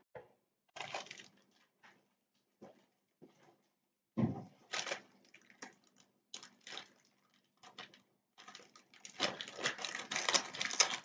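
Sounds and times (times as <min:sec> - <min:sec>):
packaging rustling and crinkling: 0:00.8 - 0:01.8, 0:04.6 - 0:11.0.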